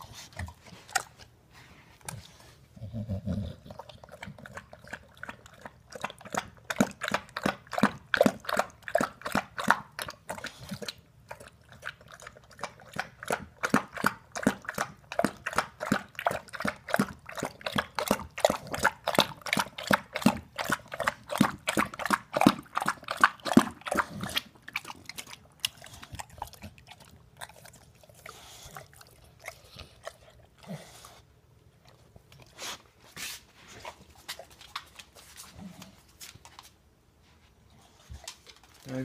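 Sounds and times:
dog licking lips: 0.0s - 1.3s, 3.6s - 36.7s
dog smacking at bowl: 3.6s - 30.3s.

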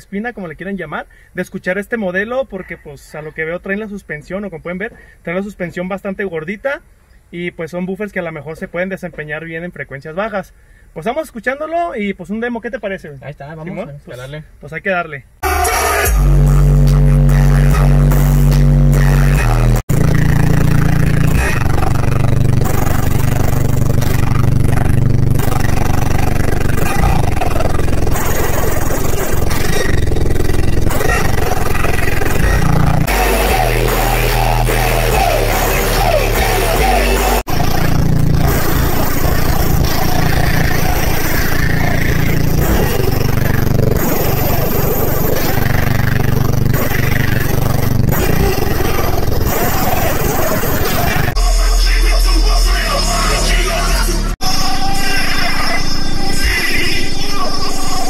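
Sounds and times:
subwoofers playing deep bass notes: 15.4s - 58.0s.

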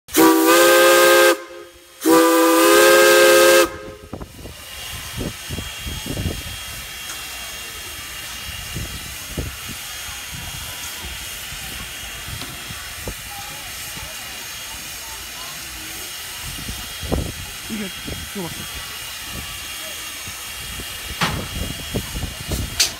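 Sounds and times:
steam whistle blasts: 0.1s - 4.2s
locomotive hissing steam: 0.1s - 22.9s.

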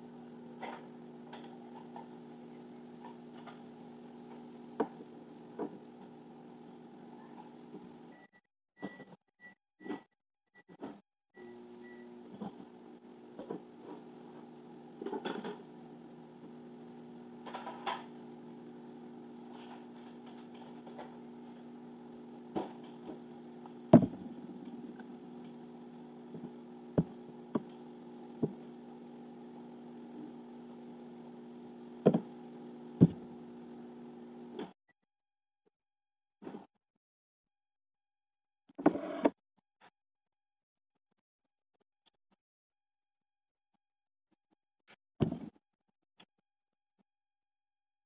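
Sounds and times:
appliance hum: 0.0s - 9.0s, 10.8s - 34.8s, 38.8s - 39.4s.

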